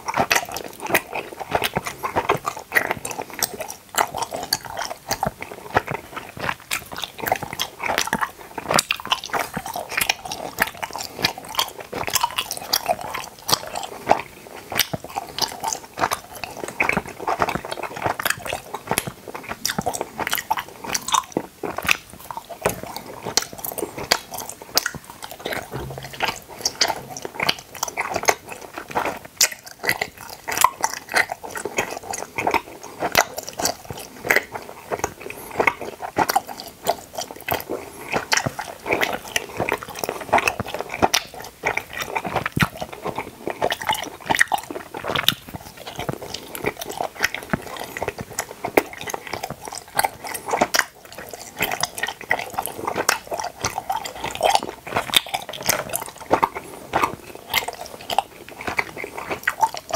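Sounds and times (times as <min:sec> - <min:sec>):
gummy being chewed: 0:00.0 - 0:59.9
mouth clicks and smacks: 0:00.0 - 0:59.9.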